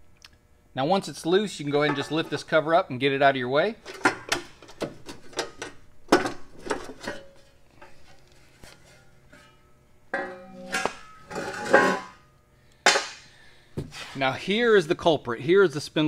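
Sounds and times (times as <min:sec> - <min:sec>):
metal clinks and knocks: 0:01.8 - 0:02.5, 0:09.3 - 0:12.2
ringing metal clang: 0:09.3 - 0:12.3
metal scraping clatter: 0:10.2 - 0:12.2.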